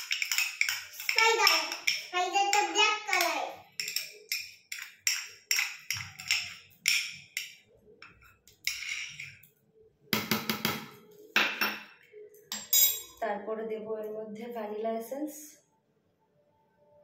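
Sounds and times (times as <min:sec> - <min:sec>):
spoon scraping a cup: 0:00.0 - 0:02.1, 0:03.8 - 0:09.5
spoon tapping a cup: 0:00.0 - 0:09.3.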